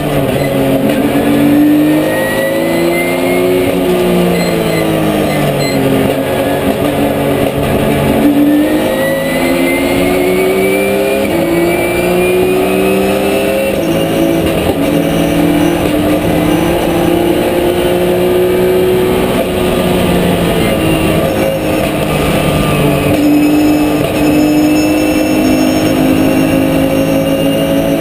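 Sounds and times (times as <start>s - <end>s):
race car engine at full throttle: 0.0s - 28.0s.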